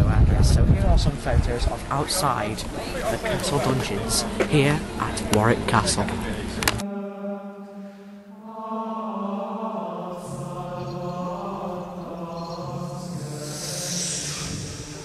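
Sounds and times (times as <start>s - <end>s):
droning chant-like music: 6.1s - 15.0s.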